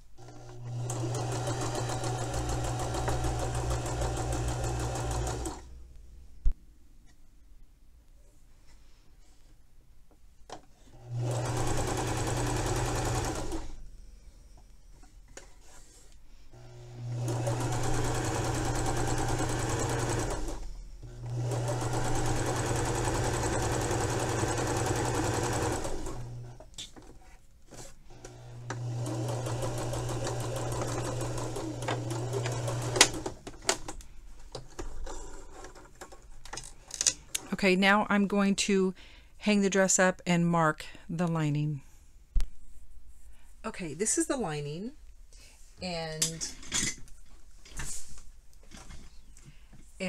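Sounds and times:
sewing machine stitching: 0:00.2 - 0:05.7, 0:11.0 - 0:13.8, 0:16.6 - 0:26.7, 0:27.7 - 0:34.0.

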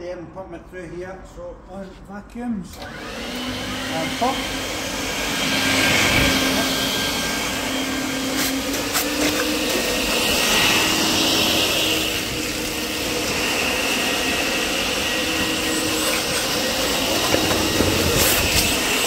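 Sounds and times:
wet vacuum motor whining: 0:02.7 - 0:19.0.

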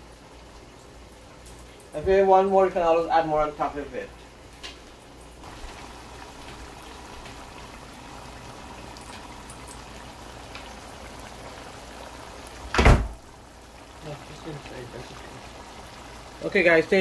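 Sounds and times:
curry bubbling in a pot: 0:05.4 - 0:17.0
loud thump: 0:12.7 - 0:13.2.

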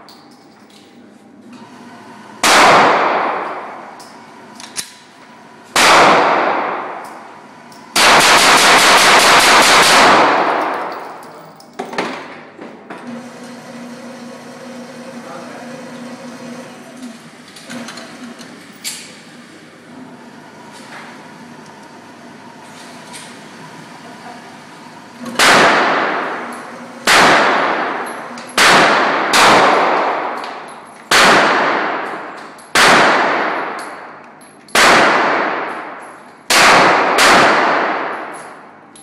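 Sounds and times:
target carrier electric hum: 0:00.0 - 0:39.0
pistol shots with echo: 0:02.4 - 0:03.7, 0:05.8 - 0:07.0, 0:08.0 - 0:11.0, 0:25.4 - 0:26.2, 0:27.0 - 0:28.0, 0:28.6 - 0:30.5, 0:31.1 - 0:34.0, 0:34.7 - 0:38.4.

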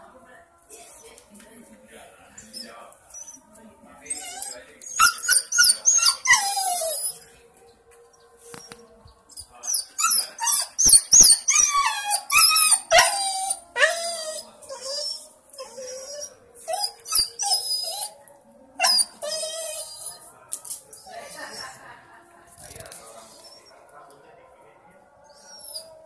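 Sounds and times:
dog whining and yelping: 0:04.1 - 0:07.2, 0:09.7 - 0:18.2, 0:18.8 - 0:20.2.

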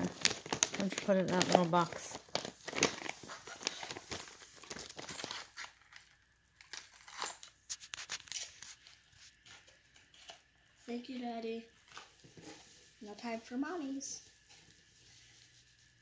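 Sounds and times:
gift packaging crinkling: 0:00.0 - 0:10.4.

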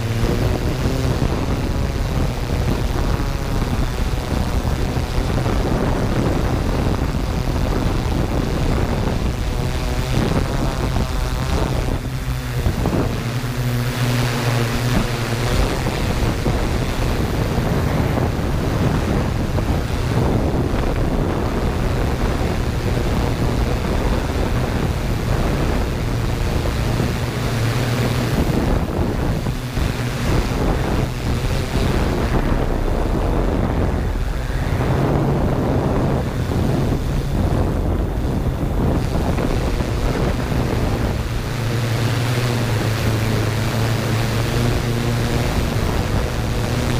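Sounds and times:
drone motors humming: 0:00.0 - 0:46.9
wind noise on microphone: 0:00.0 - 0:46.9.

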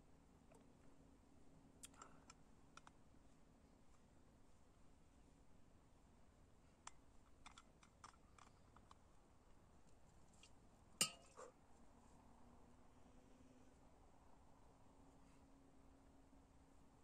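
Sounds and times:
metal bottle clicks and taps: 0:11.0 - 0:11.4
bottle clinking on stony ground: 0:11.0 - 0:11.5.

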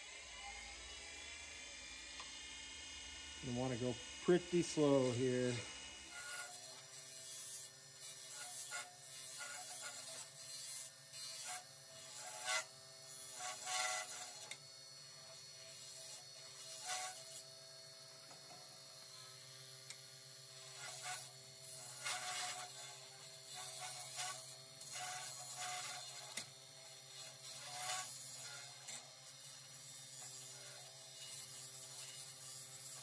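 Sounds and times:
wood lathe humming: 0:03.4 - 0:06.3
turning tool scraping wood: 0:03.5 - 0:12.7, 0:21.8 - 0:26.5.

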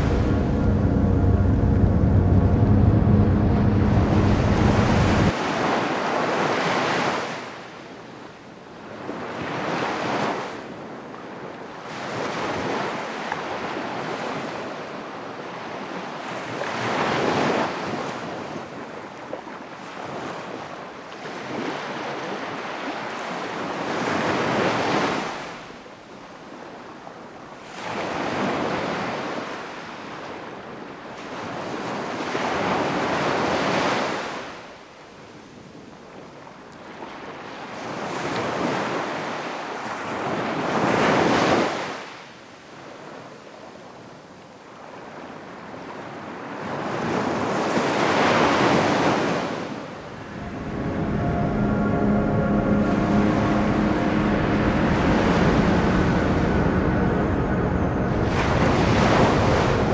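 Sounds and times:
ocean waves breaking: 0:00.0 - 0:07.6, 0:47.5 - 0:59.9.

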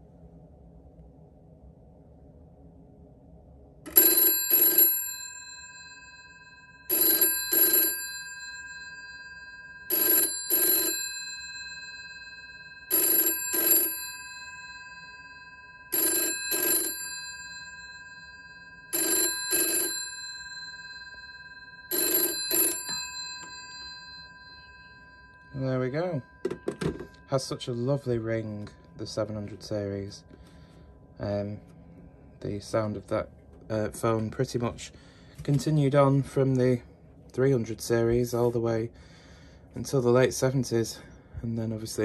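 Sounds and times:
telephone bell double rings: 0:03.9 - 0:30.8.

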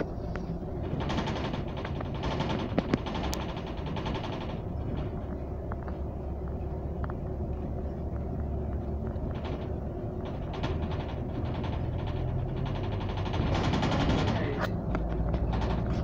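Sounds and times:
bodywork rattles and knocks: 0:00.0 - 0:16.0
bus engine and road rumble: 0:00.0 - 0:16.0.

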